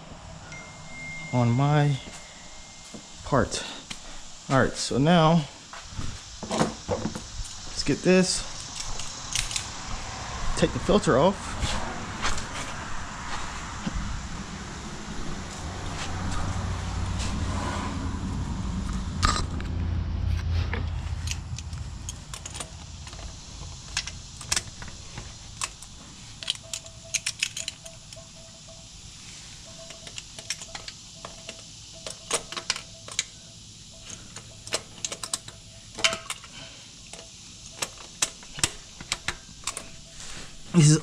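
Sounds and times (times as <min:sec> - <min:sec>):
faint broken tone: 0:00.4 - 0:05.1.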